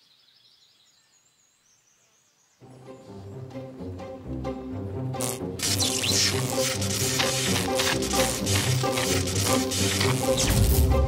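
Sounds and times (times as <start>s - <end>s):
cartoon film score: 2.6s - 11.0s.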